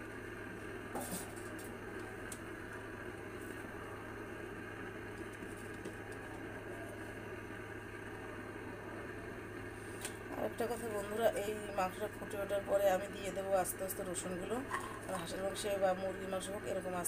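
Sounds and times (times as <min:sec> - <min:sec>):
stove hum and hiss: 0:00.0 - 0:17.0.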